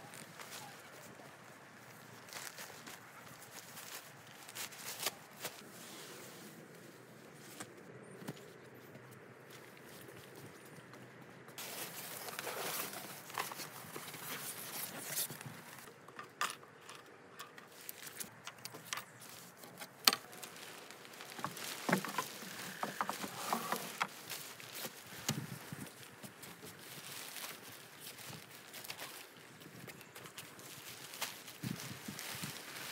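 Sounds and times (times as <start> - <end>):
tent fabric rustling: 0.0 - 7.7, 11.6 - 15.9, 19.1 - 29.6, 30.4 - 32.9.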